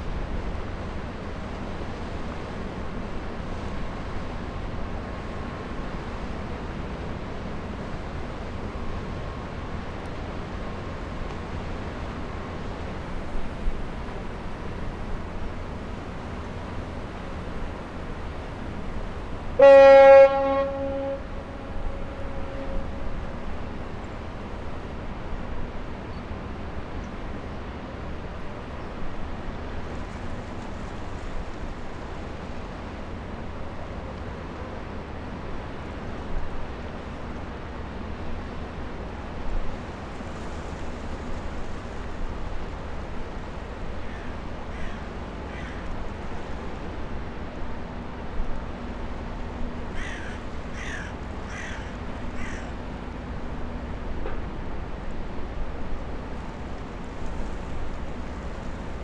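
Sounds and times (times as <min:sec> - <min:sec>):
ship engine rumble: 0:00.0 - 0:59.0
water: 0:00.0 - 0:59.0
wind: 0:00.0 - 0:59.0
bird calling: 0:50.0 - 0:52.8.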